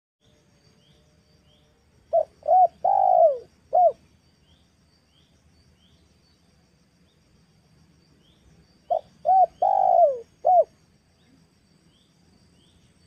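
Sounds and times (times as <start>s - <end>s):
dove cooing: 2.1s - 4.0s, 8.9s - 10.7s.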